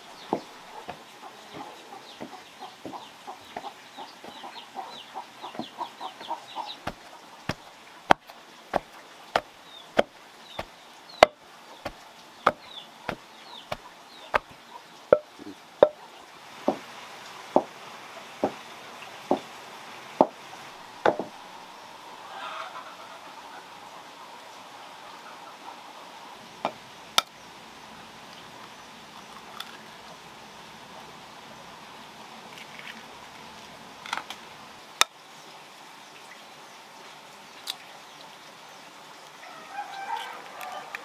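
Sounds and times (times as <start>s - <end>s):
pestle pounding in mortar: 6.8s - 16.0s.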